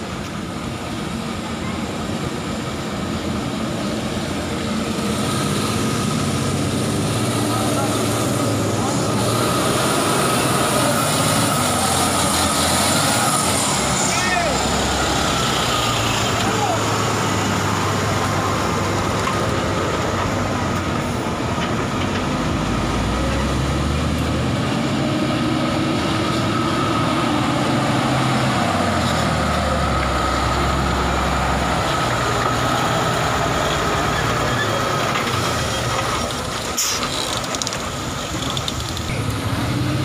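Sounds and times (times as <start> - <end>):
diesel truck engines: 0.0 - 40.0.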